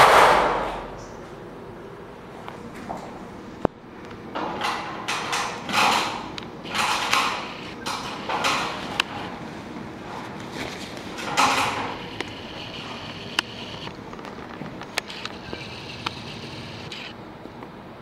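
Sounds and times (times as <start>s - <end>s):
hissing scraping: 11.2s - 13.9s, 14.8s - 17.1s.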